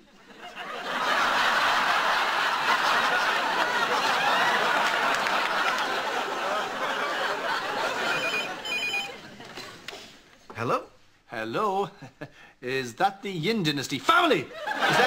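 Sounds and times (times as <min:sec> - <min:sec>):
audience laughing: 0:00.0 - 0:10.2, 0:14.5 - 0:15.0.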